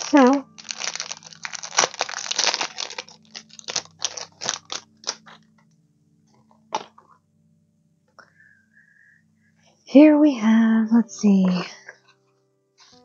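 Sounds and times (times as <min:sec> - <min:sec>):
plastic packaging crinkling: 0:00.0 - 0:05.6.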